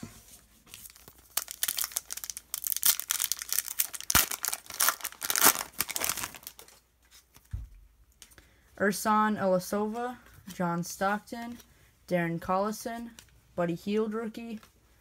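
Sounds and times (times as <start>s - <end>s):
foil wrapper tearing and crinkling: 0.7s - 6.7s.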